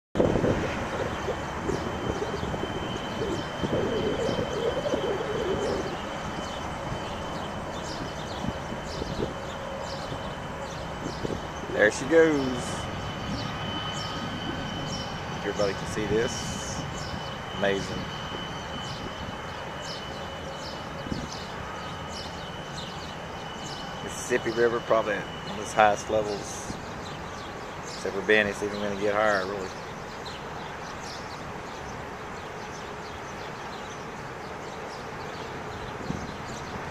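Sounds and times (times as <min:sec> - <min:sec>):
steady high thin tone: 0:00.2 - 0:21.0, 0:21.6 - 0:26.8
wind rumble on microphone: 0:00.2 - 0:29.8, 0:35.3 - 0:36.9
birds chirping: 0:00.2 - 0:36.9.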